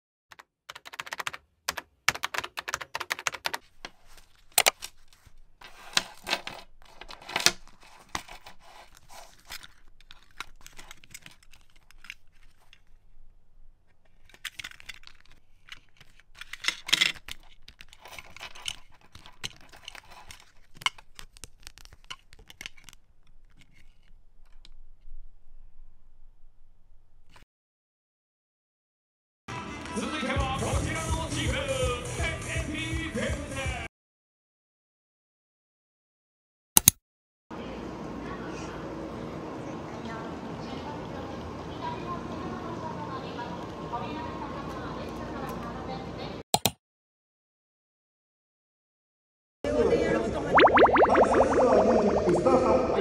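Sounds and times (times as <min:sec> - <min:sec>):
plastic wrapping crinkling: 0:07.6 - 0:13.3
sharp clicks and taps: 0:46.6 - 0:46.8.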